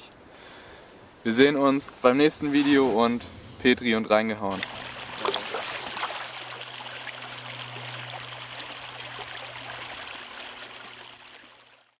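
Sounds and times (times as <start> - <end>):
low steady hum: 2.0 - 12.0
rushing water-like noise: 4.5 - 12.0.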